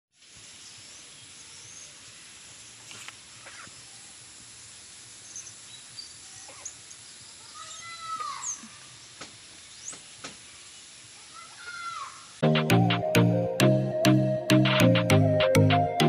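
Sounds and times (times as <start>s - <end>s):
steady high hiss: 0.2s - 16.0s
small birds chirping: 0.5s - 4.4s, 5.1s - 12.4s.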